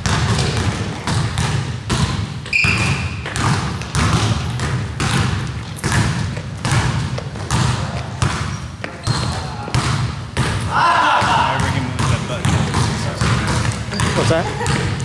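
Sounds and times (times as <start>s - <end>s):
basketball bouncing on hardwood floor: 0.0s - 15.0s
short high squeak: 2.5s - 3.2s.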